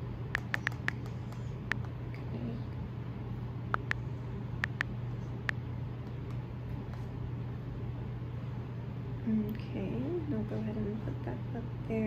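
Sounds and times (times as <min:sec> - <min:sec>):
steady low hum: 0:00.0 - 0:12.0
on-screen keyboard clicks: 0:00.4 - 0:01.9.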